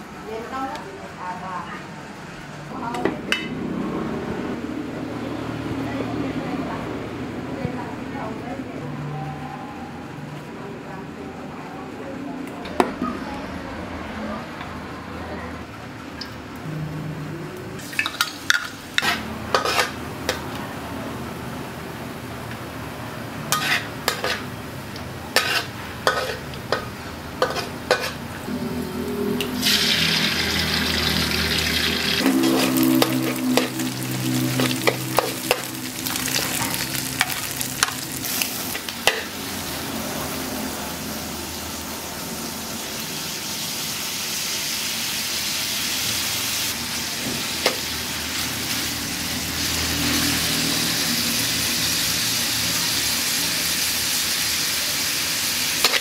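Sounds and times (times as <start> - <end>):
food sizzling in a wok: 17.8 - 56.0
metal spatula scraping a pan: 18.2 - 20.4, 23.5 - 24.5, 25.3 - 28.3, 31.8 - 39.3.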